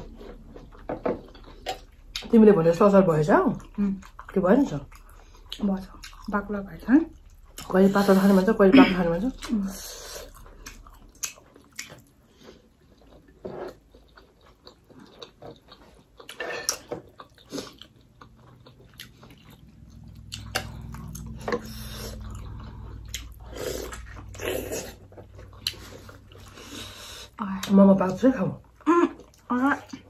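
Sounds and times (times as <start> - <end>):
low steady hum: 0.0 - 30.0
chewing and biting: 9.4 - 27.7.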